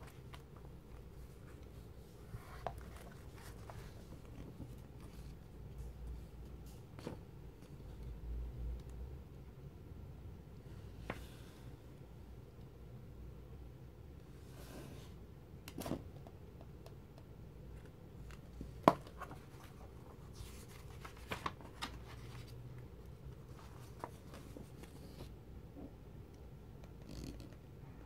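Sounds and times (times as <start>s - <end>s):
magazine pages rustling: 0.0s - 5.4s, 18.6s - 25.3s
faint room hum: 0.0s - 28.0s.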